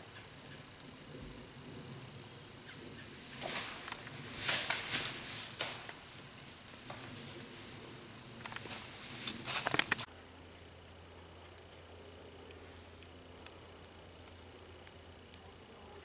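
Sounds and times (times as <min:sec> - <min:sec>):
woodland background: 0:00.0 - 0:16.0
footsteps crunching on dry leaves: 0:03.3 - 0:07.7, 0:08.5 - 0:10.1.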